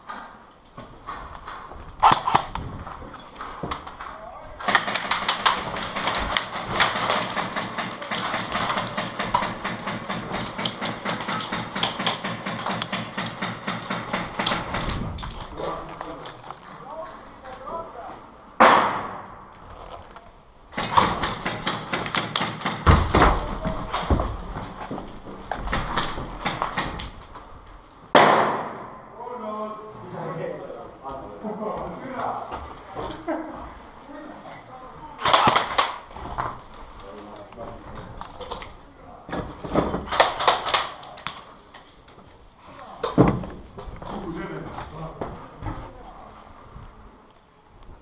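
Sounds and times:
footsteps crunching on rubble: 14.9s - 17.3s, 19.5s - 20.4s, 23.4s - 26.4s
loud bang echoing: 18.6s - 19.5s, 28.1s - 29.2s.

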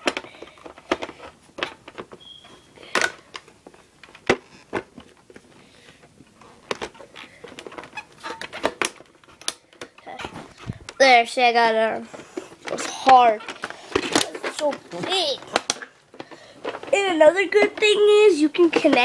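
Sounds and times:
plastic clicks and knocks: 0.0s - 2.2s, 2.9s - 5.4s, 6.3s - 11.0s.

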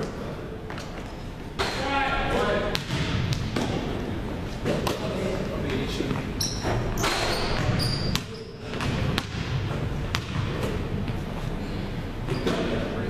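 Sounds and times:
sneaker squeaks: 0.7s - 1.8s, 6.2s - 9.2s, 10.1s - 13.0s
basketballs bouncing on wooden floor: 2.7s - 3.9s, 6.1s - 11.2s.

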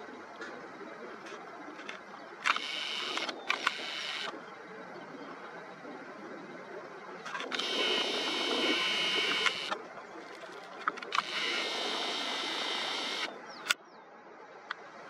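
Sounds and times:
camera clicks: 1.8s - 4.4s, 7.3s - 13.8s
camera zoom motor whirring: 2.5s - 4.3s, 7.4s - 9.8s, 10.6s - 13.8s.

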